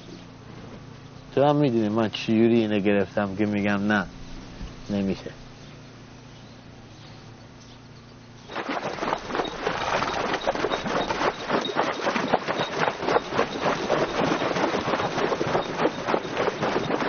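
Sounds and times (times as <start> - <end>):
hooves splashing through water: 8.5 - 17.0.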